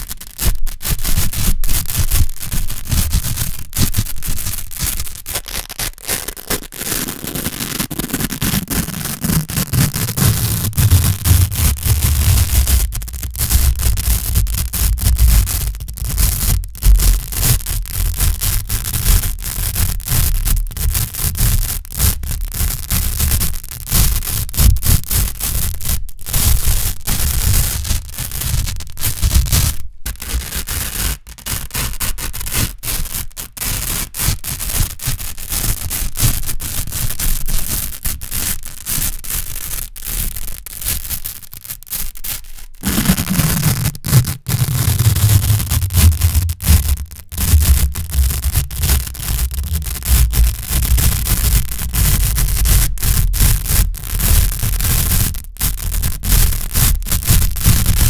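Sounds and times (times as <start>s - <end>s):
velcro strips crackling: 0.0s - 37.0s, 37.7s - 58.0s.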